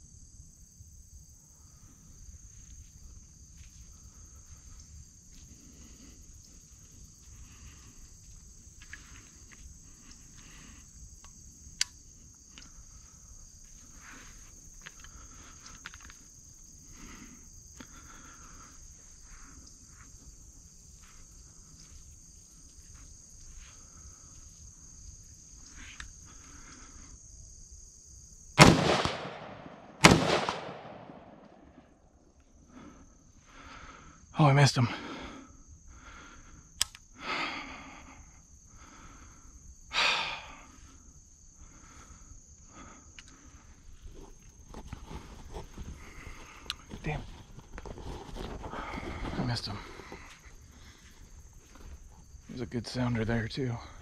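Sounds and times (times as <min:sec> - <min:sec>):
loud gunshot: 0:28.6 - 0:31.8.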